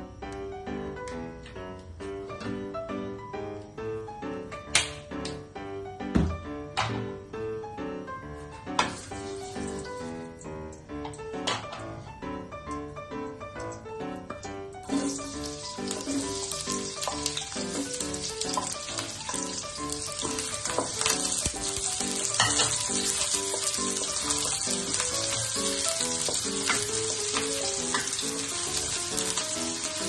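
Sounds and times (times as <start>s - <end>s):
background music: 0.0s - 30.0s
onion sizzling in oil: 8.8s - 10.3s, 14.8s - 30.0s.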